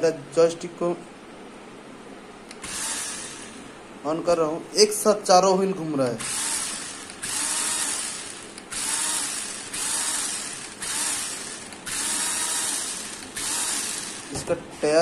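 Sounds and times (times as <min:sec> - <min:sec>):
toy car motors whirring: 0:02.6 - 0:03.5, 0:06.2 - 0:14.3.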